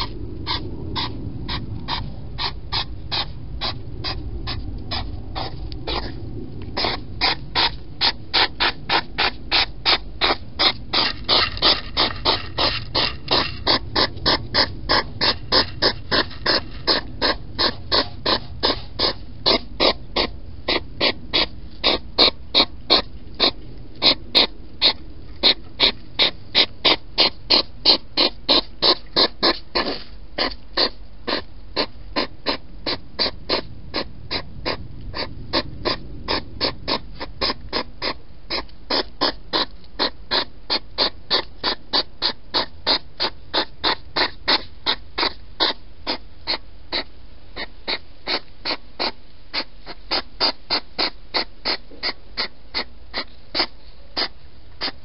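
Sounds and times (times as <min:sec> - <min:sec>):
hedgehog chomping: 0:06.8 - 0:35.3.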